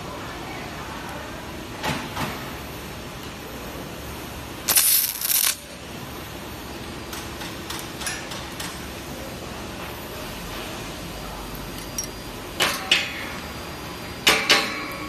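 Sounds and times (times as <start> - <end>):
stud welder arc burst: 4.6 - 5.9.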